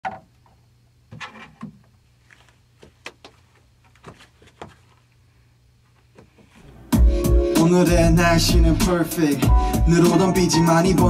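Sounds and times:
low steady hum: 5.0 - 8.8.

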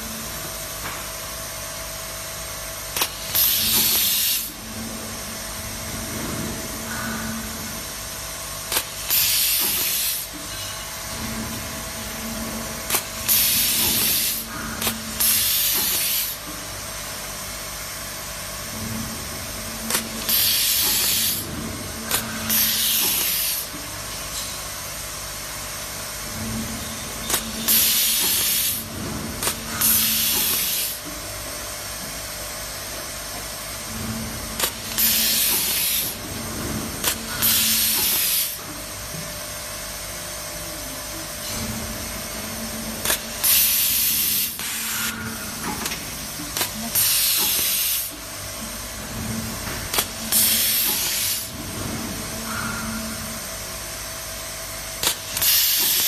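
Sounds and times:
low machine hum: 0.0 - 55.5
air hiss bursts: 3.0 - 4.5, 8.7 - 10.3, 12.9 - 16.4, 19.9 - 21.4, 22.2 - 23.8, 27.3 - 28.9, 29.7 - 31.0, 34.6 - 36.2, 37.1 - 38.6, 46.9 - 48.2, 49.9 - 51.5, 55.0 - 56.0.

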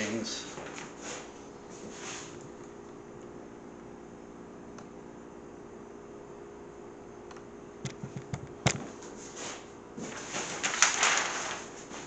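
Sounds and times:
faint steady hum: 0.0 - 12.0
loud paper rustling and crinkling: 10.0 - 12.0
paper crackles and taps: 10.0 - 12.0.

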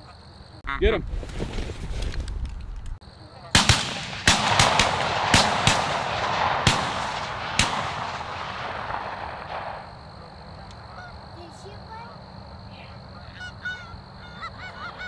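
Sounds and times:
shotgun blasts: 3.5 - 10.0.

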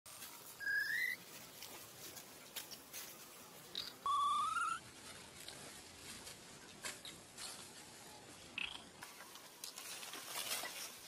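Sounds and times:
monkey squealing: 0.6 - 1.2, 4.1 - 4.8
faint clicks and rustles: 9.0 - 11.0.

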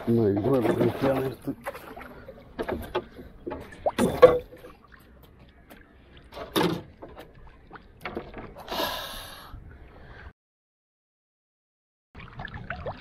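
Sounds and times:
water splashing around canoe: 0.0 - 8.8.

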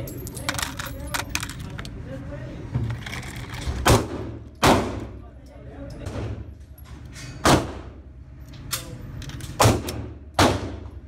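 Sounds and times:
gunshots echoing indoors: 3.8 - 5.2, 7.4 - 8.0, 9.6 - 11.0.

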